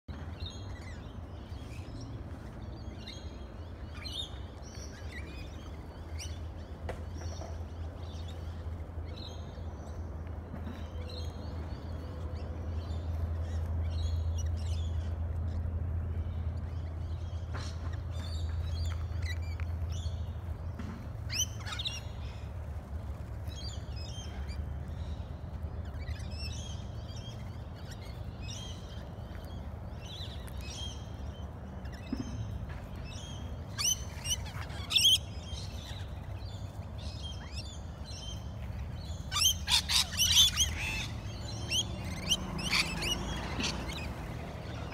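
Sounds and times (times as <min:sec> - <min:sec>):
parrots chattering and screeching: 0:33.6 - 0:37.7, 0:38.9 - 0:44.9.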